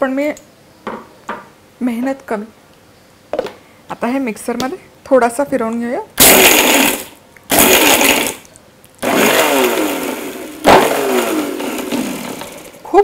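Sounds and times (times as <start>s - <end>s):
mixer grinder crushing: 6.2s - 12.9s.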